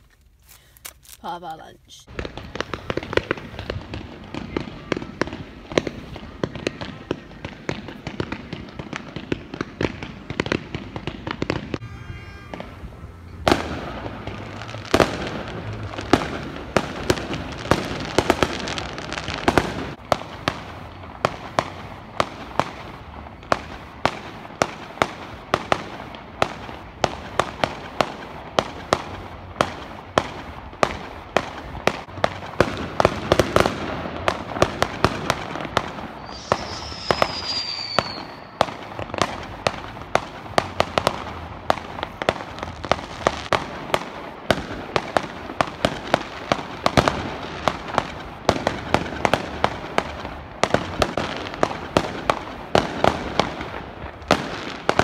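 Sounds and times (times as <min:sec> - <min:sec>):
fireworks bangs and crackling: 0:01.2 - 0:55.0
high firework whistle: 0:11.8 - 0:13.8, 0:36.1 - 0:39.5.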